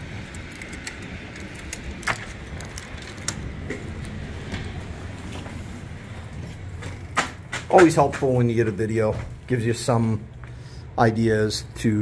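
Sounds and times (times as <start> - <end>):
road traffic rumble: 0.0 - 12.0
door handle and latch clicking: 0.2 - 4.2.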